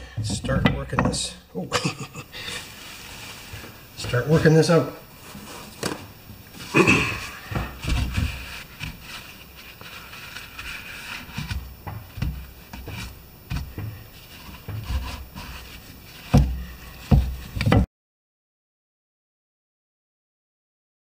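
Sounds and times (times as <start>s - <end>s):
paper towel wiping grease: 2.4s - 5.8s, 6.5s - 17.7s
scraping: 2.4s - 17.9s
handling knocks: 11.3s - 17.8s.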